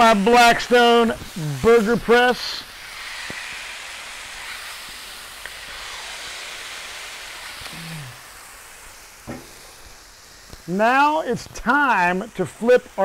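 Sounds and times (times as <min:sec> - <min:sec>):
burger patties sizzling on griddle: 0:00.0 - 0:13.0
man's low vocal sound: 0:01.3 - 0:01.7, 0:07.7 - 0:08.2.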